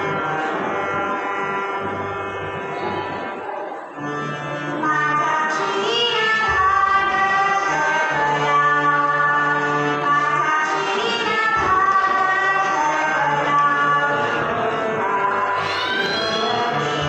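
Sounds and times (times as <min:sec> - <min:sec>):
harmonium sustained tones: 0:00.0 - 0:17.0
woman singing devotional song: 0:15.1 - 0:16.8.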